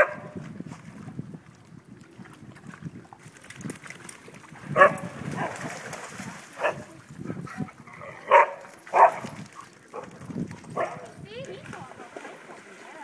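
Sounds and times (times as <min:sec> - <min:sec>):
dogs barking: 0:00.0 - 0:00.3, 0:04.8 - 0:05.5, 0:06.6 - 0:10.2, 0:10.8 - 0:11.1
water splashing: 0:00.0 - 0:13.0.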